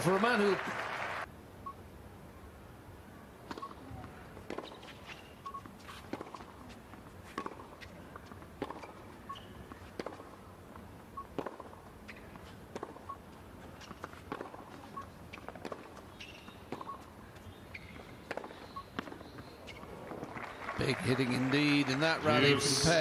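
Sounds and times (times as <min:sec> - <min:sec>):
tennis ball bouncing: 0:03.4 - 0:10.5, 0:11.2 - 0:20.4
sneaker squeaks: 0:03.5 - 0:08.0, 0:08.6 - 0:10.3, 0:11.2 - 0:20.6
rackets striking tennis ball: 0:07.3 - 0:07.8, 0:08.6 - 0:10.4, 0:11.3 - 0:13.0, 0:13.9 - 0:14.7, 0:15.3 - 0:17.1, 0:17.7 - 0:20.5.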